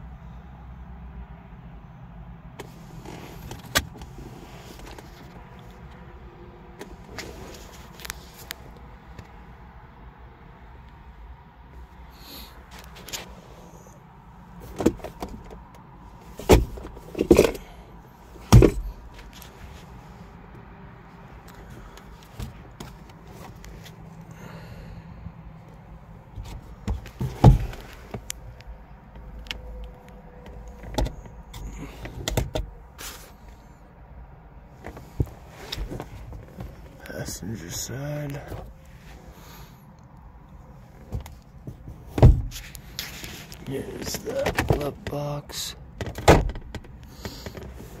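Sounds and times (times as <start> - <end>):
faint steady background noise: 0.0 - 48.0
car interior trim clicks and knocks: 14.6 - 17.6, 18.4 - 19.5, 22.1 - 23.9, 26.3 - 29.6, 30.4 - 32.7, 41.0 - 42.8, 44.0 - 45.2, 45.9 - 48.0.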